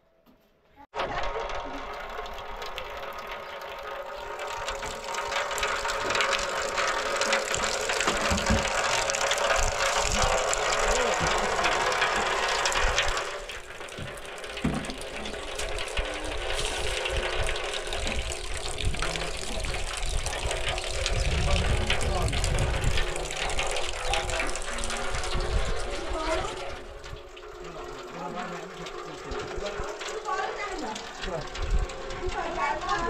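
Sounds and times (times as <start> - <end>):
heavy rain falling: 1.0 - 33.0.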